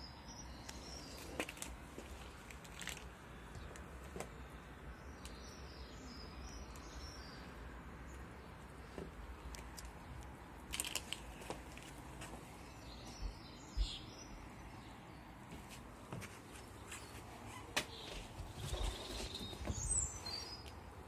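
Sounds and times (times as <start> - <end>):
bird chirps: 12.7 - 15.2, 16.8 - 20.8.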